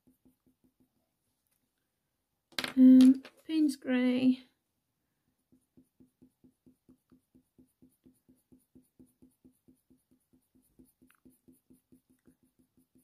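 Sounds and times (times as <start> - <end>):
pencil scratching on paper: 0.0 - 1.1, 5.3 - 13.0.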